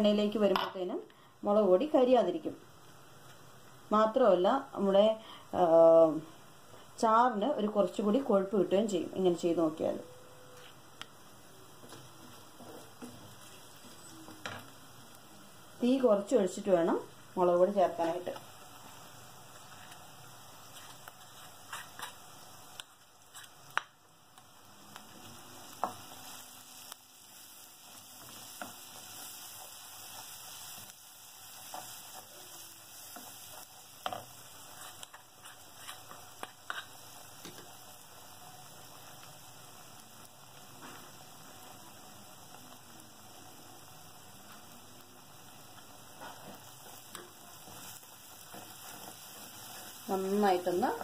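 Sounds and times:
paste sizzling in hot oil: 11.5 - 51.0.

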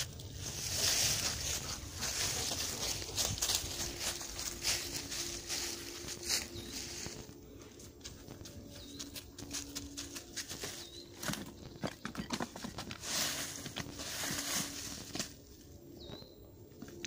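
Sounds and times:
dog rustling through dry leaves: 0.0 - 7.3, 13.0 - 15.3.

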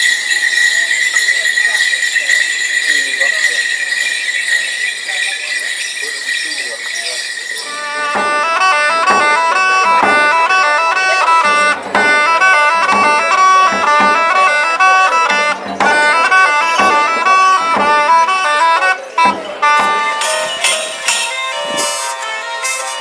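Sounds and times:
tambourine jingles: 0.0 - 8.4
reedy wooden pipe tune: 0.0 - 23.0
side drum strokes: 7.6 - 22.8.

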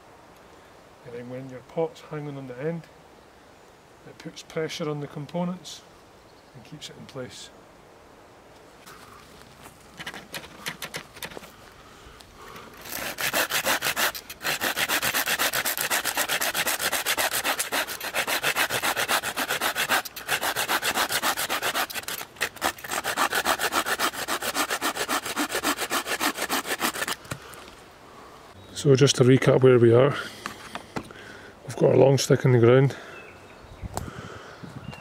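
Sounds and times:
knife scraping wooden stick: 12.8 - 27.4.

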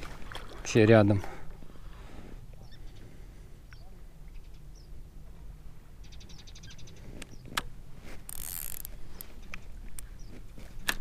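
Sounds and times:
fishing reel ratchet ticks: 8.3 - 9.3
sharp reel clicks: 8.3 - 10.1.

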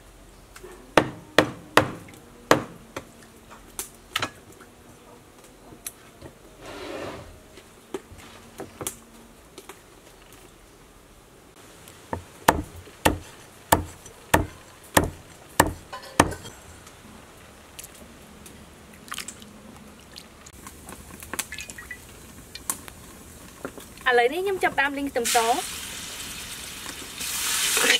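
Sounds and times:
knife chopping on wooden block: 12.5 - 16.5.

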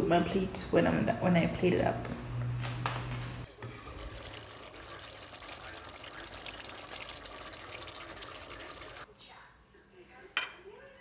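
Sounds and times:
stew bubbling in a pot: 3.5 - 9.1.

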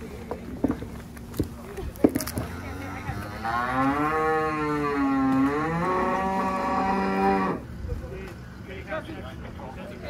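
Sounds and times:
cow mooing: 2.4 - 7.6.

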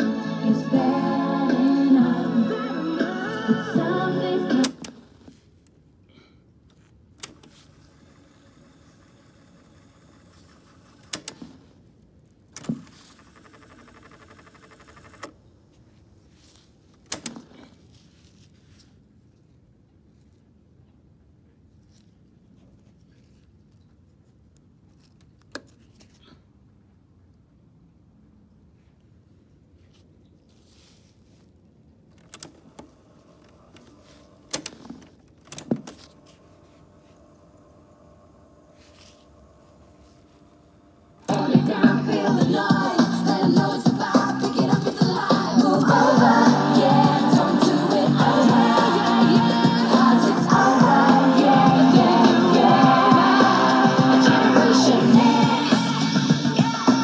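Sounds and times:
tape transport whirring: 0.0 - 5.8, 6.7 - 11.9, 12.5 - 15.8, 32.1 - 57.0
cassette keys mechanical clunks: 17.0 - 17.6, 33.6 - 36.2.

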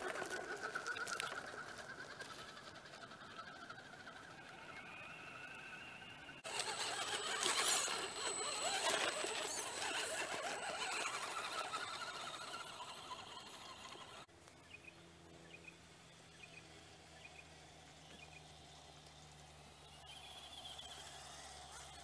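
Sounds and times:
tyres scrabbling through gravel: 0.0 - 14.3
electric motor and gears whining: 4.0 - 14.3, 16.4 - 22.0.

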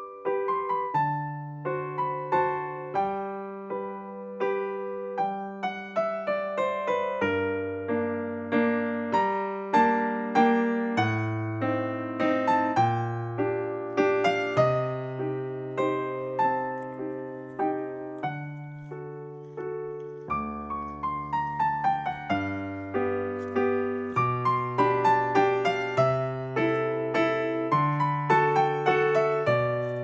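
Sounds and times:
gentle piano music: 0.0 - 30.0.

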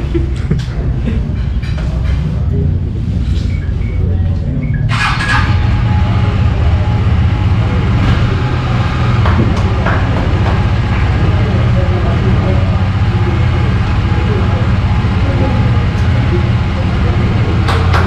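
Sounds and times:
motorcycle engine running: 4.8 - 18.0.

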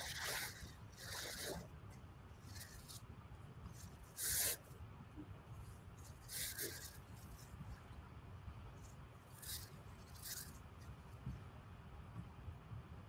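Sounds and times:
faint room noise: 0.0 - 13.0
soft hissing rustles: 2.3 - 4.8, 5.6 - 7.9.

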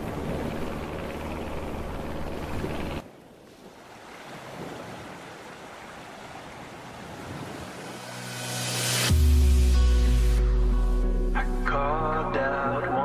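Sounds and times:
wind on microphone: 6.4 - 8.1.

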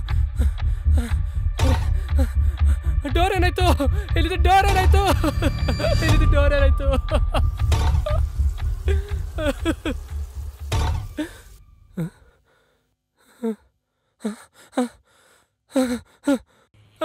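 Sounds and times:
man gasping and sobbing: 0.0 - 4.3, 5.0 - 6.0, 11.2 - 16.8.

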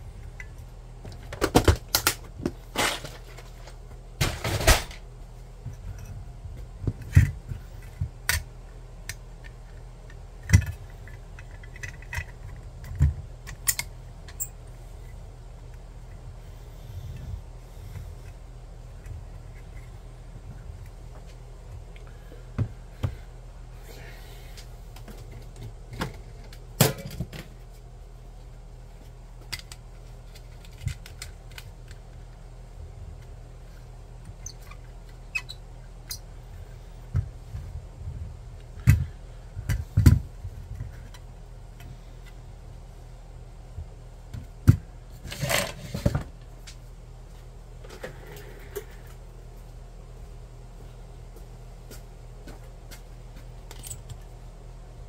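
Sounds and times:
steady low hum: 0.0 - 55.0
hands handling small parts: 5.7 - 16.3, 28.9 - 32.4.

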